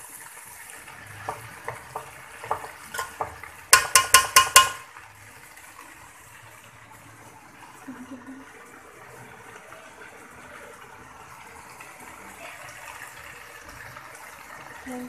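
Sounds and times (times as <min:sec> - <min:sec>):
spoon stirring in metal pot: 0:01.2 - 0:04.9
spoon tapping pot ringing: 0:01.3 - 0:04.9.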